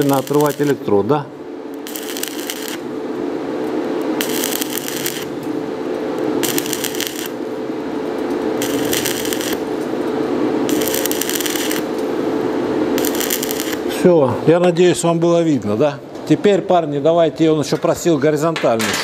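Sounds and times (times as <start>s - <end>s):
welding arc crackling: 0.0s - 14.2s
steady hum: 0.0s - 18.5s.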